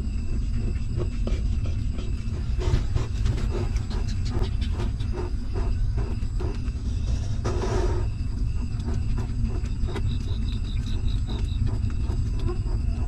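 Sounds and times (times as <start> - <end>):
steady low rumble: 0.0 - 13.0
puppies suckling: 0.3 - 7.4.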